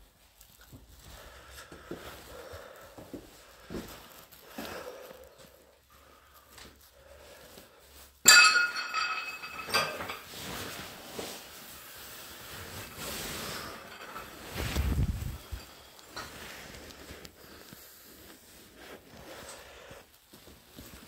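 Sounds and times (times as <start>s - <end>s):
glassware clinking: 8.2s - 10.3s.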